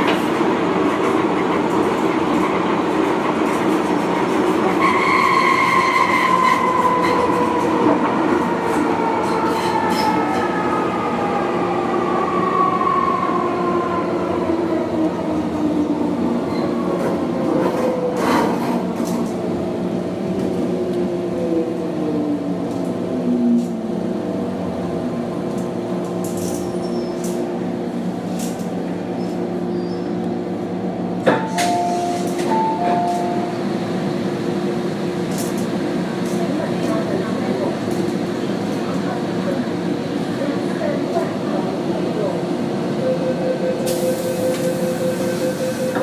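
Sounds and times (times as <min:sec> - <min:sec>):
train traction whine: 0:41.5 - 0:46.0.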